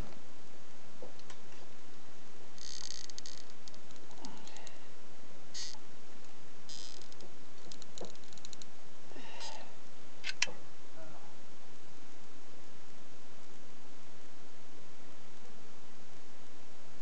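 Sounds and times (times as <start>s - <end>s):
sharp click: 10.2s - 10.5s.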